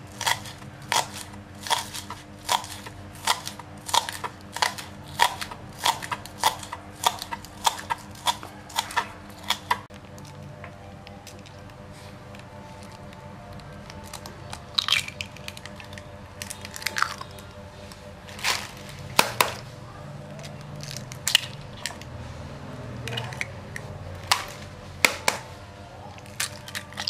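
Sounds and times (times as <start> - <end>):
eggs cracking against a bowl: 0.1 - 10.4, 11.2 - 19.6, 23.0 - 25.5.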